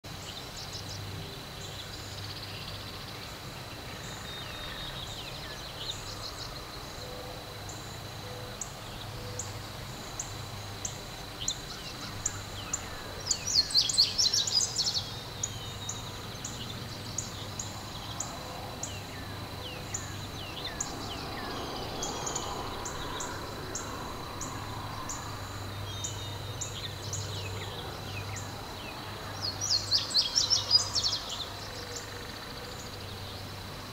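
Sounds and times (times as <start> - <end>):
small birds chirping: 7.7 - 33.6.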